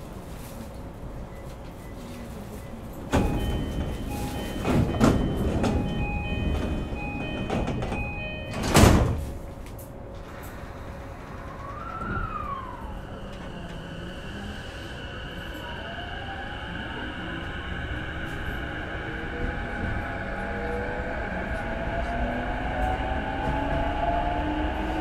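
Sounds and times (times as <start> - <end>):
sliding train doors thudding shut: 3.1 - 12.6
electronic door chime: 3.2 - 9.1.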